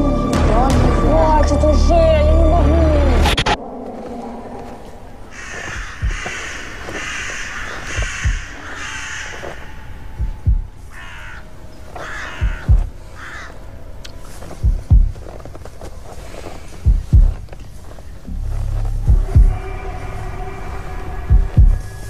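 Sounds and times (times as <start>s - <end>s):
crow cawing: 4.4s - 13.8s, 19.2s - 22.0s
deep double thumps: 5.7s - 6.5s, 7.9s - 8.6s, 10.2s - 10.8s, 12.4s - 13.0s, 14.6s - 15.4s, 16.8s - 17.5s, 18.3s - 19.8s, 21.2s - 22.0s.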